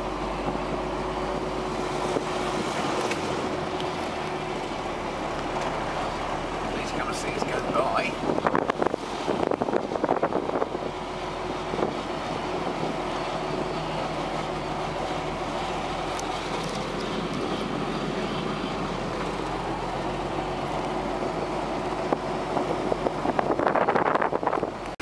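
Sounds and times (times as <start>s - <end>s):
tractor engine droning: 0.0s - 25.0s.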